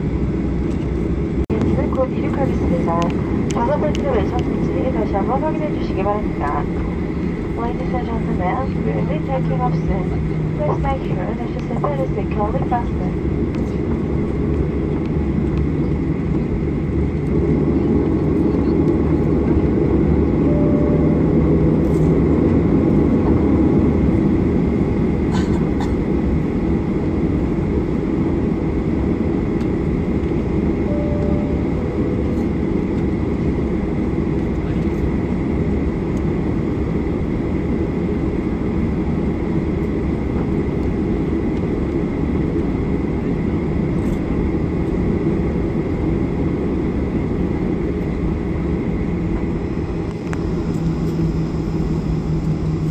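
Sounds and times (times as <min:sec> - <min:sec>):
jet engines low rumble: 0:00.0 - 0:52.9
faint high whine: 0:20.3 - 0:22.4, 0:30.8 - 0:34.0, 0:49.6 - 0:52.9.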